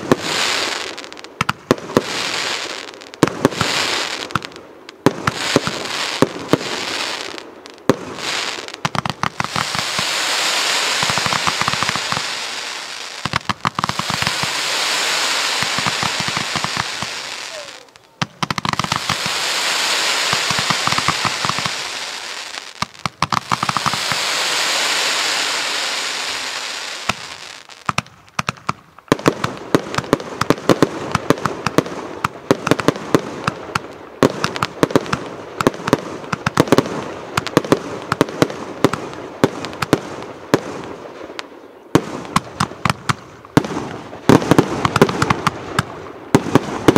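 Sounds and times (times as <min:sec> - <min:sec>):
crackling firework tails: 0:00.0 - 0:46.9
firework pops and crackles: 0:00.0 - 0:46.9
firework rushing hisses: 0:05.3 - 0:18.0, 0:18.6 - 0:27.9.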